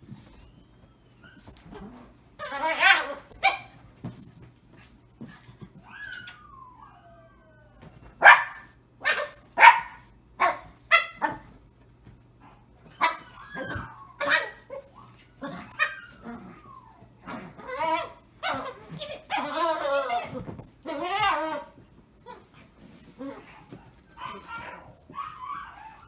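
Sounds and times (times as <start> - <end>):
dog whining: 0.2 - 3.4, 5.8 - 7.9, 13.0 - 22.6, 23.2 - 26.0
small dog barking: 8.2 - 11.4.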